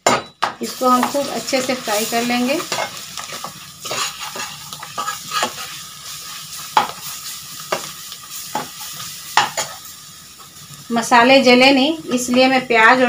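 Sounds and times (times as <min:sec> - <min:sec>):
spices sizzling in oil: 0:00.0 - 0:13.0
metal spoon scraping pan: 0:00.8 - 0:07.1.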